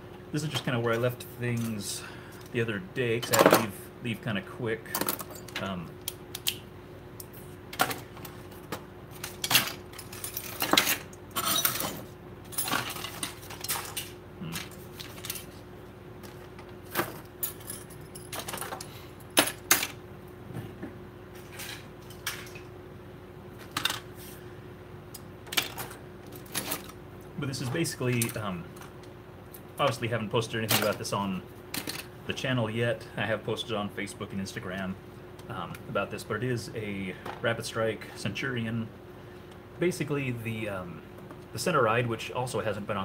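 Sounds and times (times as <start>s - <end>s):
fan humming: 0.0s - 43.0s
plastic parts and tools clattering: 7.8s - 15.6s, 16.2s - 20.0s, 23.6s - 24.0s, 25.4s - 27.0s, 31.8s - 32.1s.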